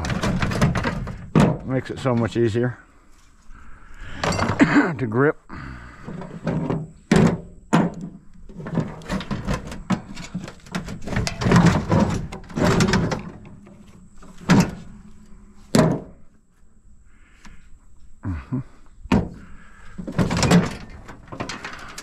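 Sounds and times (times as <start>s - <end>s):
metal clanks and knocks: 0.0s - 2.3s, 4.2s - 5.0s, 6.0s - 15.0s, 15.7s - 16.2s, 19.1s - 22.0s
metal rattling and scraping: 0.0s - 2.6s, 4.1s - 4.8s, 6.0s - 15.2s, 19.3s - 22.0s.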